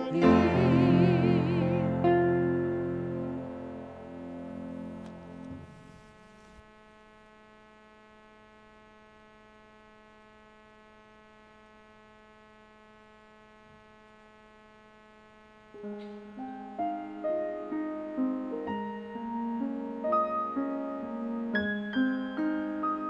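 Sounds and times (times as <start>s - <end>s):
piano playing: 0.0s - 5.8s, 15.8s - 23.0s
faint electrical hum: 0.0s - 23.0s.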